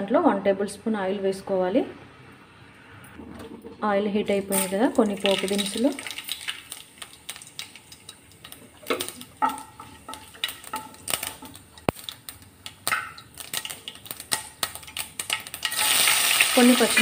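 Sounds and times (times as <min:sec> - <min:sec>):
spices crackling in hot oil: 0:04.5 - 0:17.0.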